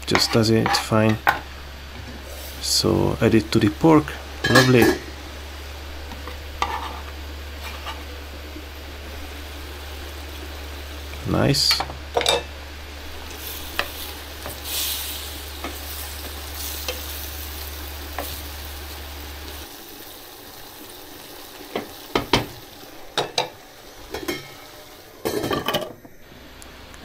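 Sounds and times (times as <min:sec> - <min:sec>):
low hum: 0:00.0 - 0:19.7
meat sizzling in a frying pan: 0:00.0 - 0:26.7
wooden spoon scraping a pan: 0:00.1 - 0:02.7, 0:06.0 - 0:08.2, 0:13.2 - 0:18.5.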